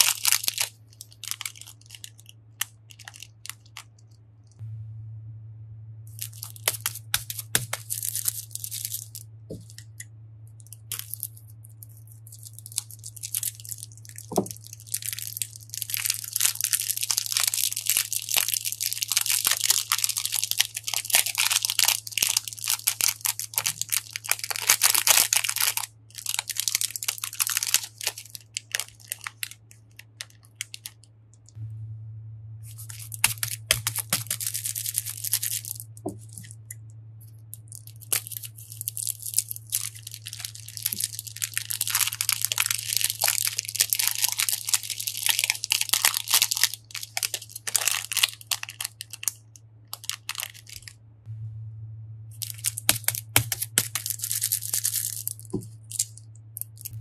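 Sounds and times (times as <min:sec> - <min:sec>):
plastic bags crinkling: 0:00.0 - 0:04.6, 0:06.1 - 0:10.0, 0:10.6 - 0:31.6, 0:32.7 - 0:36.7, 0:37.3 - 0:50.9, 0:52.4 - 0:57.0
low hum: 0:00.0 - 0:57.0
water beads pouring into bowl: 0:32.7 - 0:36.5, 0:37.6 - 0:49.3, 0:52.4 - 0:56.9.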